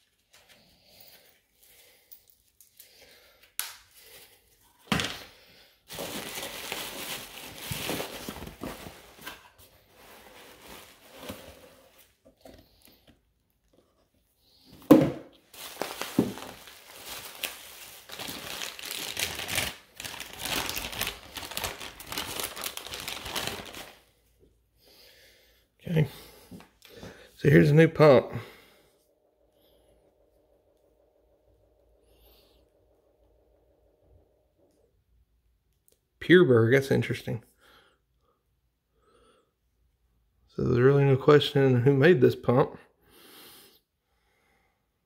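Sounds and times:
plastic bag crinkling: 0:05.9 - 0:12.1, 0:15.4 - 0:24.1.

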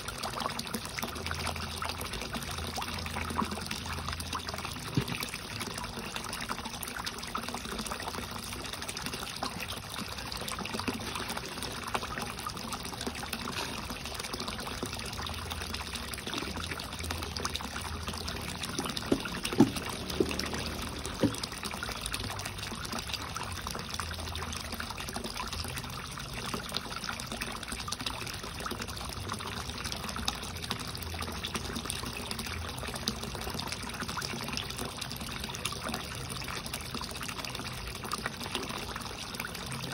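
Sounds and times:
water splashing into a pond: 0:00.0 - 0:39.9.

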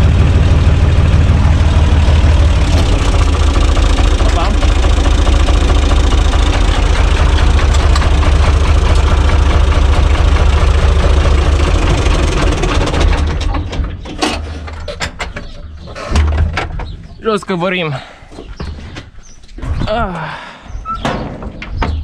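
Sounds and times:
tractor diesel engine running: 0:00.0 - 0:16.4
knocks and clicks in cab: 0:06.0 - 0:09.2.

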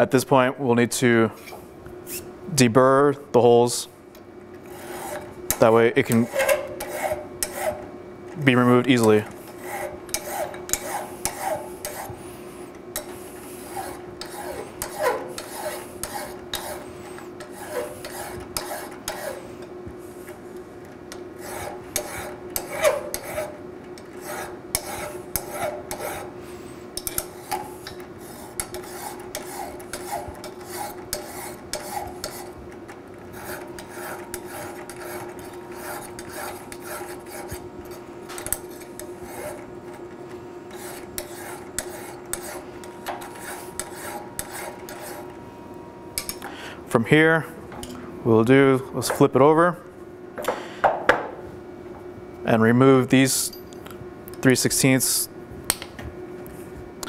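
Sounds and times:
faint steady hum: 0:00.0 - 0:57.0
hand file rasping on metal: 0:04.7 - 0:07.9, 0:09.0 - 0:12.2, 0:13.0 - 0:19.5, 0:21.4 - 0:26.3, 0:27.0 - 0:32.6, 0:33.3 - 0:39.8, 0:40.7 - 0:45.3.

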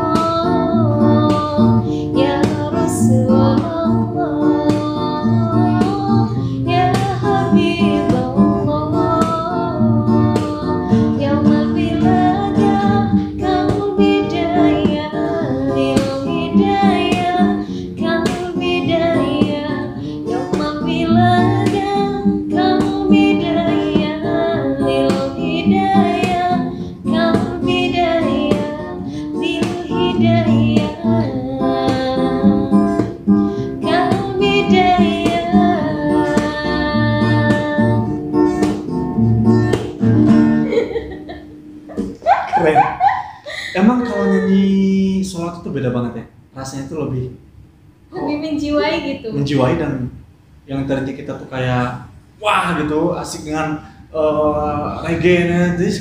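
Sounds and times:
woman singing devotional song: 0:00.0 - 0:38.8, 0:42.9 - 0:44.7
acoustic guitar strumming: 0:00.0 - 0:46.1, 0:52.6 - 0:56.0.

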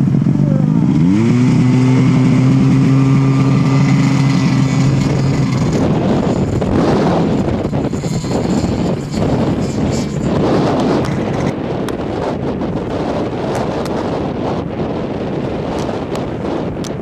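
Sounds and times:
snowmobile engine revving: 0:00.0 - 0:16.4
wind rushing noise: 0:00.0 - 0:17.0.

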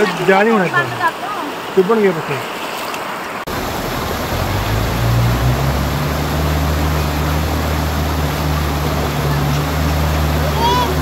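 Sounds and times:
vehicle engine humming: 0:03.5 - 0:11.0.

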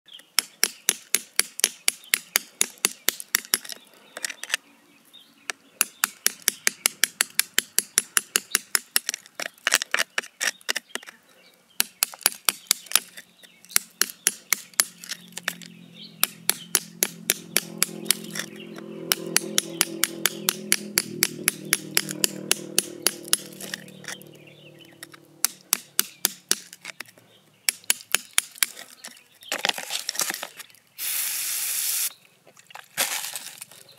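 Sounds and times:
metal bar tapping rock: 0:13.7 - 0:24.3, 0:24.9 - 0:27.1
low hum: 0:15.2 - 0:25.9.

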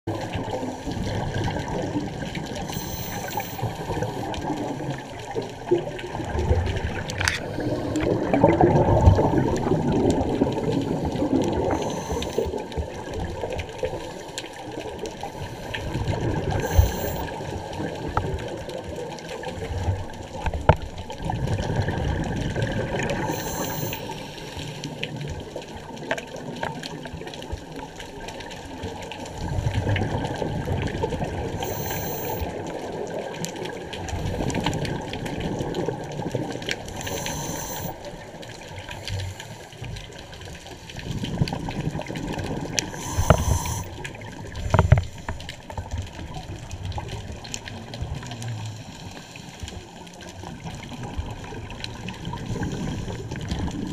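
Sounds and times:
low underwater rumble: 0:00.1 - 0:13.6
bubbling exhaled air: 0:00.1 - 0:18.5, 0:21.2 - 0:25.5, 0:29.4 - 0:45.9.

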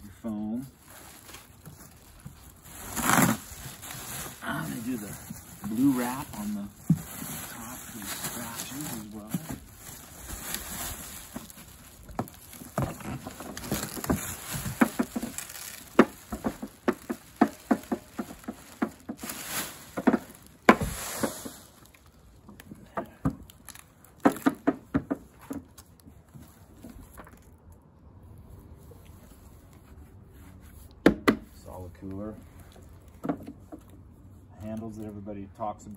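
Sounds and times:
plastic bag rustling: 0:00.3 - 0:22.6
crackles and knocks: 0:04.9 - 0:27.8, 0:33.0 - 0:34.1.

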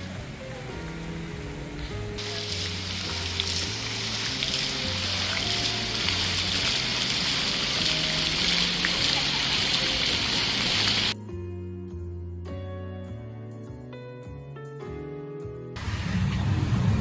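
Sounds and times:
fountain jets splashing: 0:00.0 - 0:11.2
music with slow bass notes: 0:00.0 - 0:17.0.

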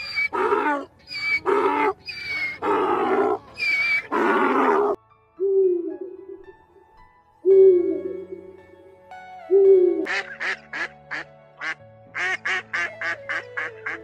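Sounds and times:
wild ass braying: 0:00.0 - 0:05.0.

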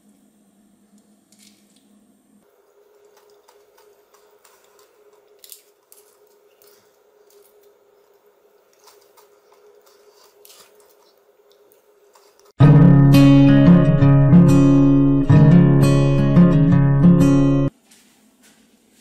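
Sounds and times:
spoon cracking sugar crust: 0:02.9 - 0:12.6.

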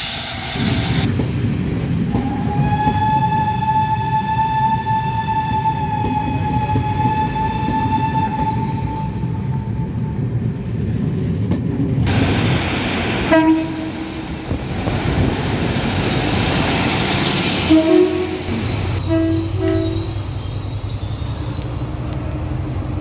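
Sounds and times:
train coaches rumbling past: 0:00.0 - 0:23.0
train horn blast: 0:02.2 - 0:10.2, 0:13.3 - 0:14.2, 0:17.6 - 0:20.2.

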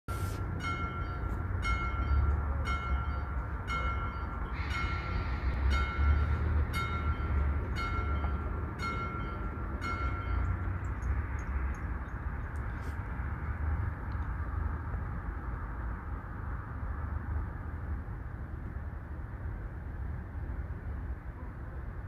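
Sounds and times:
level-crossing warning bell: 0:00.1 - 0:12.3
low rumble: 0:01.8 - 0:19.2.

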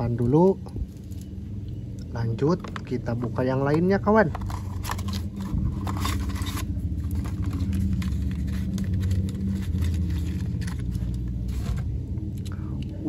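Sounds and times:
steady low rumble: 0:00.0 - 0:13.0
cardboard box rustling: 0:04.3 - 0:12.0.

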